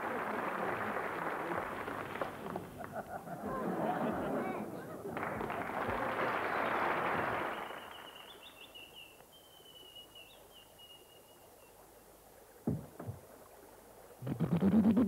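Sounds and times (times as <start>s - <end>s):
single knock: 12.7s - 13.2s.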